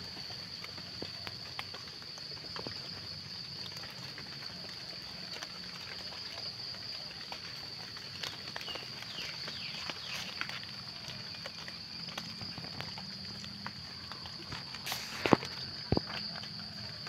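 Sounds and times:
footsteps on wet leaf litter: 7.0s - 17.0s.

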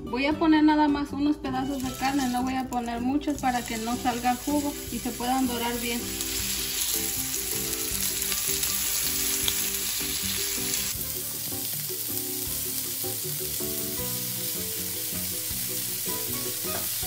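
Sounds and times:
meat sizzling in oil: 1.6s - 17.0s.

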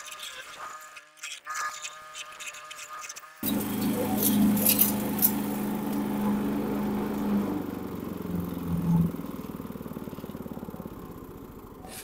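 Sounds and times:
chipper shredder engine running: 3.4s - 12.0s.

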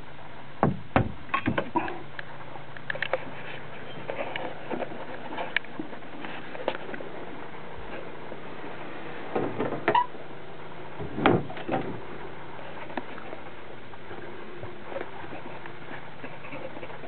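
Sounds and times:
short knocks and bumps: 0.6s - 1.8s, 11.0s - 12.1s.

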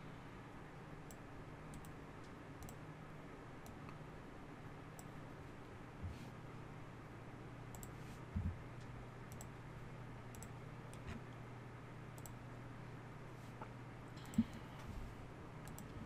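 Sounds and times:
low steady hum: 0.0s - 16.0s
computer mouse clicks: 1.0s - 2.9s, 7.7s - 8.0s, 8.8s - 9.6s, 10.3s - 11.3s, 12.2s - 12.4s, 14.2s - 14.9s, 15.6s - 16.0s.

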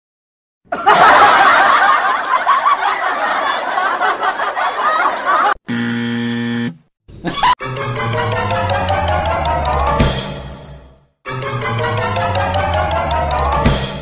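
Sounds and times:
laugh track: 0.7s - 5.6s, 7.1s - 10.0s, 11.3s - 13.4s
held musical tone: 7.6s - 10.2s, 11.3s - 13.8s.

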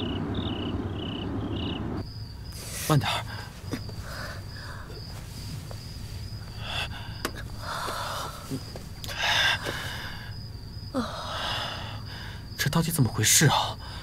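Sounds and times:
sharp hissing breath: 2.5s - 10.3s.

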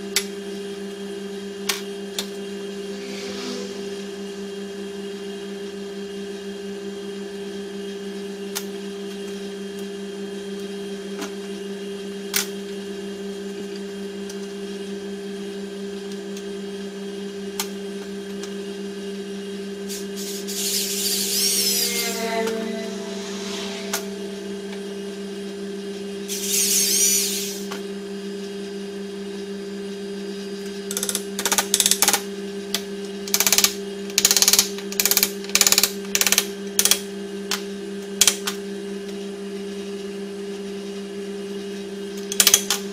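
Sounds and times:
steady low hum: 2.1s - 4.8s, 20.3s - 26.1s.

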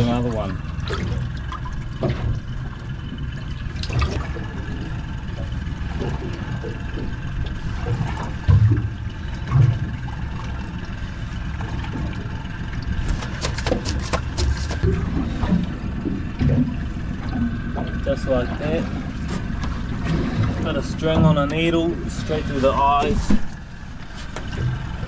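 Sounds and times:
low rumble: 0.0s - 25.0s
water sloshing: 0.0s - 25.0s
dull knocks: 13.0s - 15.6s.

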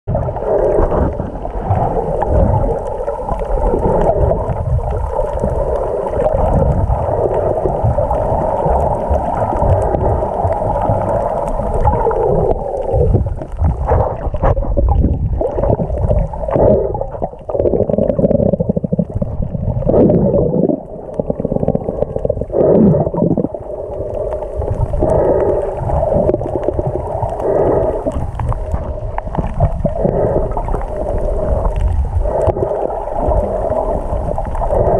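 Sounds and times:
low underwater rumble: 0.0s - 34.9s
water gurgling and sloshing: 0.1s - 34.9s.

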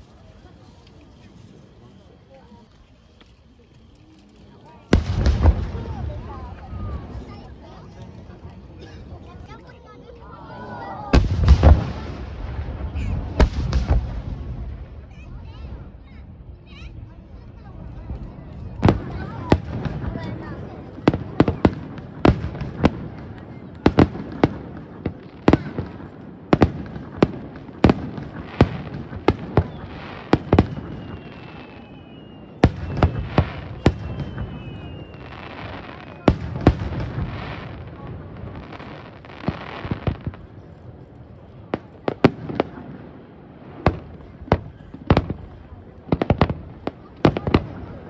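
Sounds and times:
fireworks crackling hiss: 0.0s - 48.0s
fireworks bangs: 4.6s - 48.0s
falling whistle: 30.8s - 33.1s, 33.8s - 36.2s.

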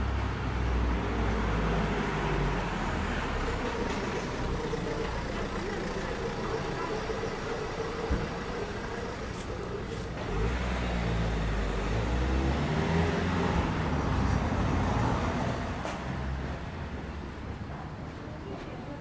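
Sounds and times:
town traffic noise: 0.0s - 19.0s
motor vehicle passing close by: 6.8s - 16.7s.

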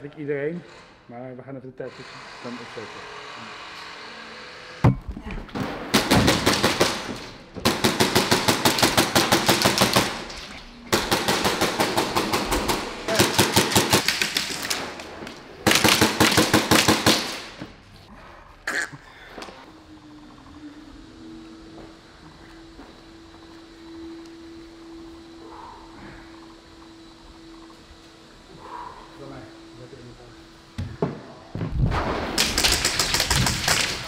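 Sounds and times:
airsoft guns firing full auto: 5.9s - 10.3s, 10.9s - 15.0s, 15.6s - 17.6s, 32.3s - 34.0s
sharp crack: 31.8s - 34.0s.

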